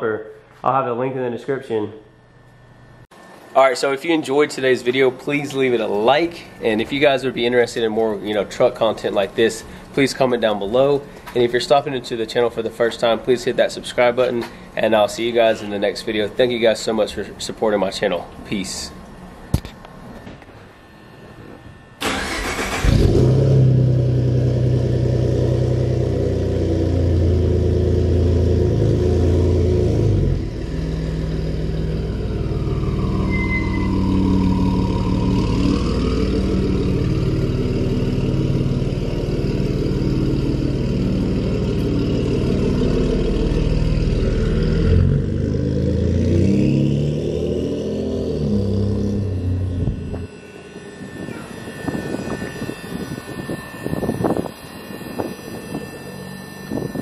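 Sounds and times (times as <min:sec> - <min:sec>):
truck engine revving: 0:22.0 - 0:57.0.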